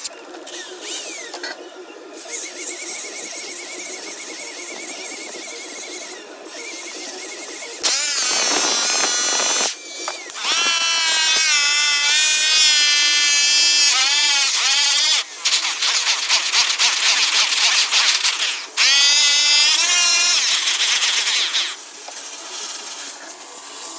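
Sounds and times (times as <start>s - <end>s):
electric polisher whine: 2.2s - 15.4s.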